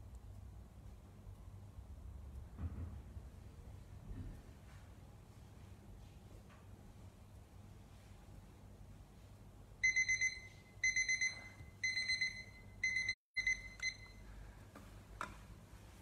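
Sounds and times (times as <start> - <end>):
kitchen timer beeps: 9.8 - 14.3.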